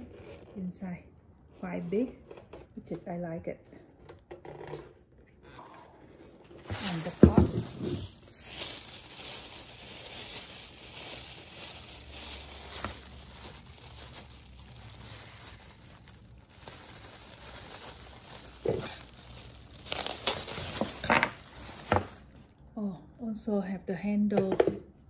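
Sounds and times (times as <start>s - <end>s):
plastic bag crinkling: 6.5s - 22.7s.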